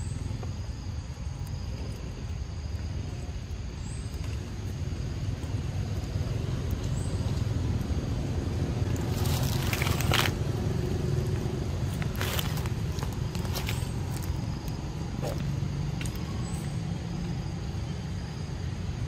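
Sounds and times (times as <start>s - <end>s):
low outdoor rumble: 0.0s - 19.0s
scratchy rustle: 9.1s - 10.4s.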